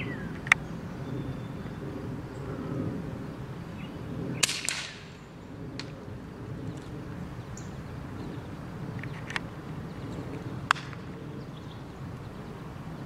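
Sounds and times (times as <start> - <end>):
air rifle sharp cracks: 4.4 - 5.2, 10.7 - 11.0.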